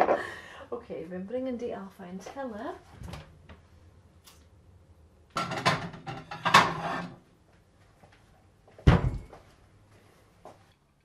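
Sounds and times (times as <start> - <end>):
ceramic plates clattering: 5.4 - 7.2.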